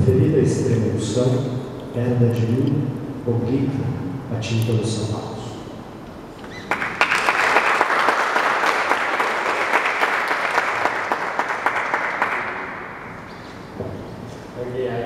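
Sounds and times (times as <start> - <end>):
audience applauding: 6.5 - 13.3.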